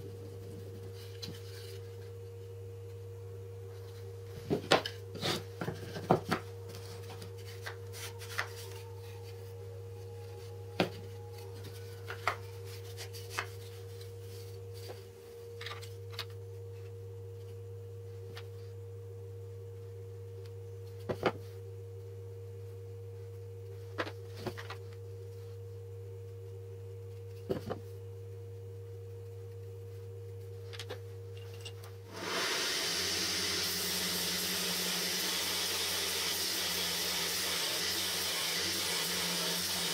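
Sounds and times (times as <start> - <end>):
steady low hum: 0.0 - 32.3
belt sander hissing: 32.1 - 39.9.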